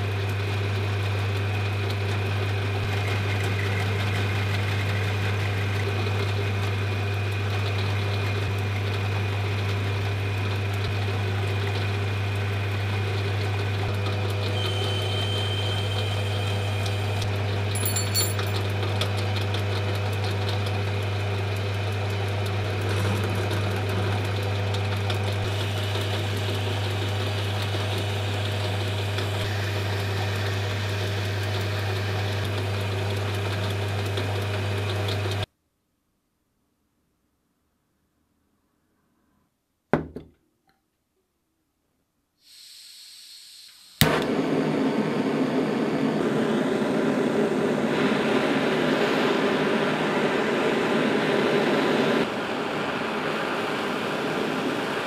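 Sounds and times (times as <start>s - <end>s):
machine humming: 20.8s - 35.4s.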